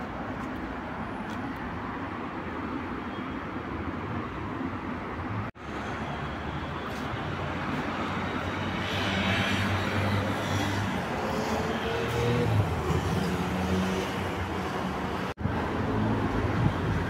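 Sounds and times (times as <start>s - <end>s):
street traffic: 0.0s - 17.0s.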